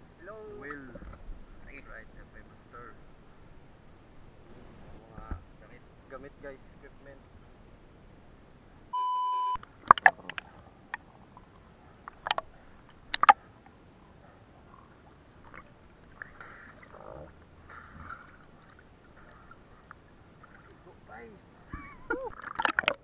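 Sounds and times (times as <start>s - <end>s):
test-tone beep: 9.0s - 9.6s
water sloshing: 9.6s - 23.0s.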